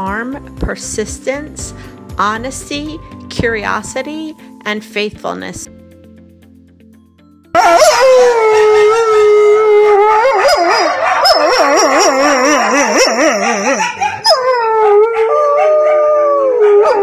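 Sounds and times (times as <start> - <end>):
dog howling: 7.6 - 17.0.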